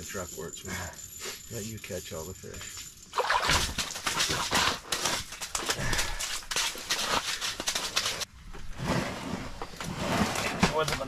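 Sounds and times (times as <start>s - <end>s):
fishing gear rustling and clicking: 2.3s - 8.3s.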